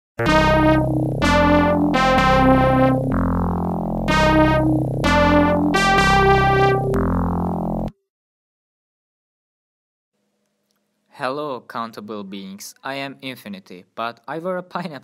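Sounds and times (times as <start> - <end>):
electronic keyboard chords: 0.2 - 8.0.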